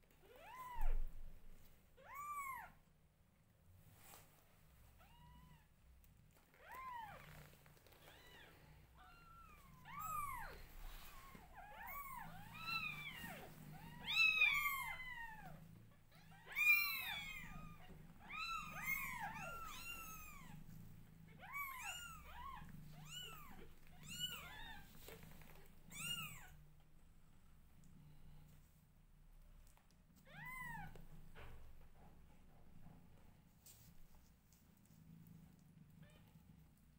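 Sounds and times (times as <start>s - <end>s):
kittens mewing: 8.0s - 20.7s, 21.3s - 24.9s.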